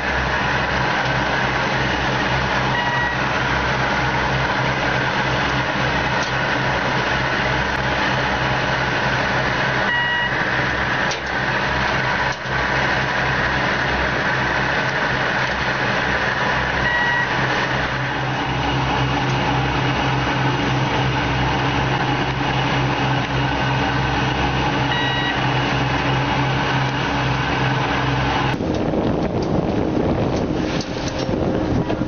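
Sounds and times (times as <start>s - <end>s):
boat engine droning: 0.0s - 32.0s
short beeps: 2.7s - 3.2s, 9.9s - 10.4s, 16.8s - 17.4s, 24.9s - 25.4s.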